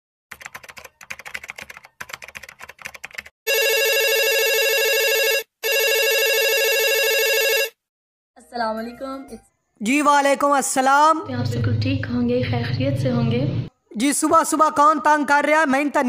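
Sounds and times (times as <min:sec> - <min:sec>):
keyboard typing clicks: 0:00.3 - 0:03.3
telephone ringing: 0:03.5 - 0:07.8.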